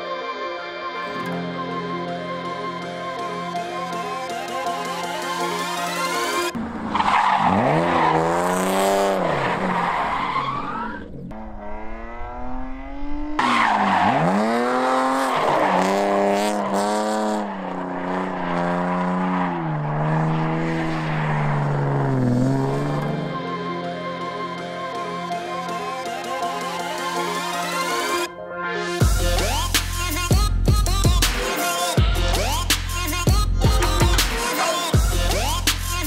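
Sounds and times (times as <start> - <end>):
music: 0.0 - 6.6, 23.1 - 36.0
car engine revving: 3.6 - 23.6.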